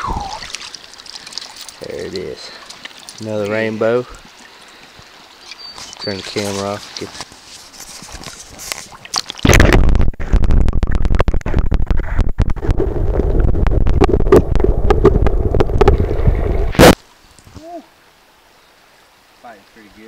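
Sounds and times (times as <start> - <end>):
underwater stream rushing: 0.0 - 7.1, 8.6 - 17.0.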